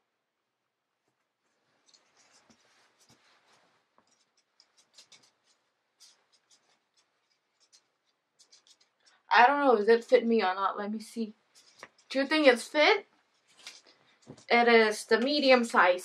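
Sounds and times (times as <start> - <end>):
hoodie fabric rustling: 1.3 - 9.0
fabric rubbing against hair: 1.4 - 15.9.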